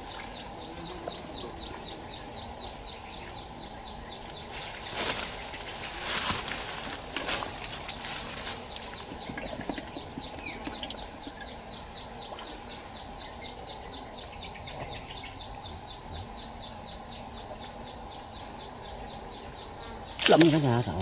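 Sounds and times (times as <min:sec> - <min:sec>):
high insect trill: 0:00.0 - 0:21.0
insect chirping: 0:00.0 - 0:21.0.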